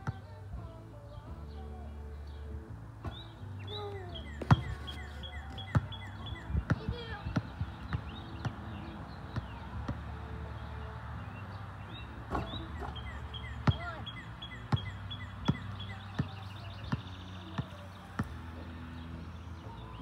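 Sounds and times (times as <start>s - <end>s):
basketball bouncing on asphalt: 0.0s - 0.3s, 3.0s - 10.3s, 12.3s - 19.8s
birds chirping: 0.0s - 20.0s
ball hitting hoop: 4.4s - 8.6s, 13.6s - 14.0s, 14.7s - 18.4s.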